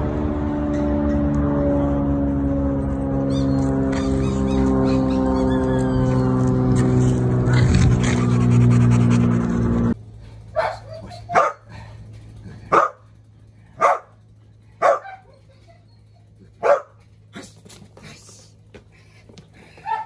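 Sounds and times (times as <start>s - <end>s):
loud steady drone: 0.0s - 10.0s
dog barking: 10.6s - 11.7s, 12.7s - 13.0s, 13.8s - 14.1s, 14.8s - 15.4s, 16.6s - 17.0s.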